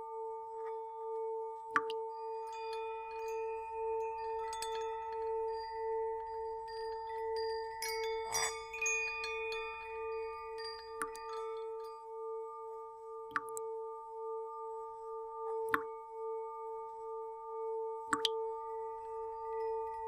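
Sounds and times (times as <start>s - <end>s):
chime-like tinkles and clicks: 1.7s - 12.1s.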